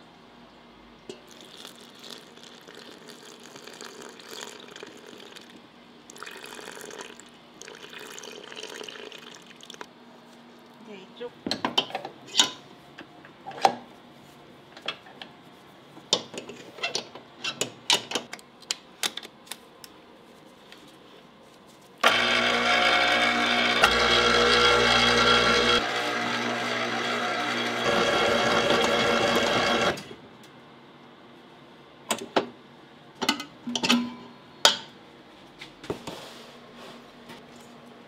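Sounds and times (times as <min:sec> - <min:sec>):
stand mixer motor running: 0:22.0 - 0:30.1.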